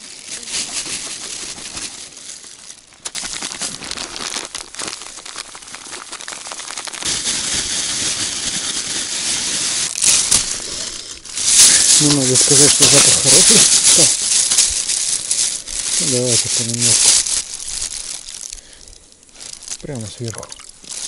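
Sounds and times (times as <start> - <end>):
plastic bag crinkling: 0.0 - 21.0
breadcrumbs poured into bag: 3.0 - 18.7.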